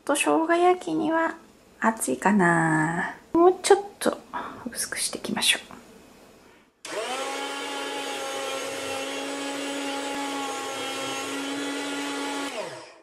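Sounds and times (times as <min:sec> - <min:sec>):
electric food slicer humming: 0:06.8 - 0:13.0.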